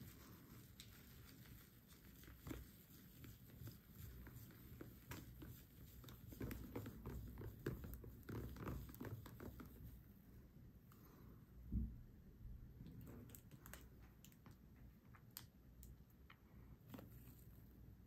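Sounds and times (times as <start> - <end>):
plastic straw stirring cream: 0.0 - 10.0
faint scrapes and squishes: 0.0 - 10.2, 16.3 - 17.8.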